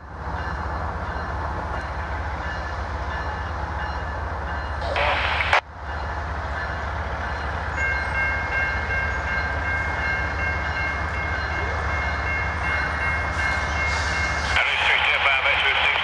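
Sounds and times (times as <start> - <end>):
locomotive engines droning: 0.0 - 16.0
train rumble: 0.0 - 16.0.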